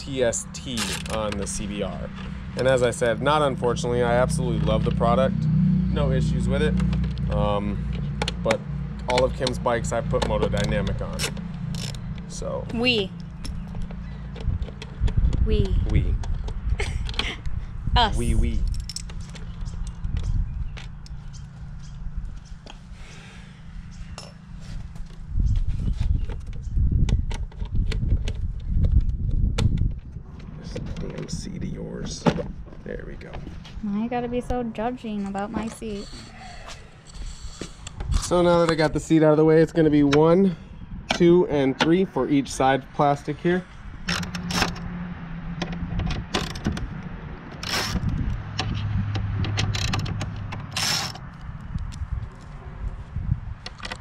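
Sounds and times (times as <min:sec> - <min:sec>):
low rumble on microphone: 0:00.0 - 0:42.2, 0:45.4 - 0:54.0
screwdriver clicks and scrapes: 0:48.6 - 0:51.5.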